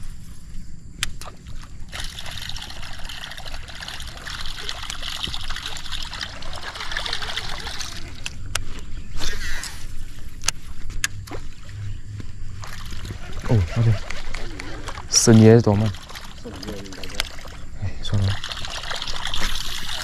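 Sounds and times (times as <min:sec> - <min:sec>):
water trickling and splashing: 0:01.2 - 0:08.3, 0:12.6 - 0:20.0.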